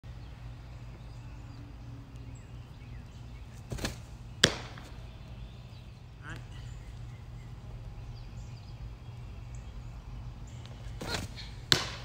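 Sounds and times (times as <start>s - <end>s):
ball smacking into mitt: 11.0s - 12.0s.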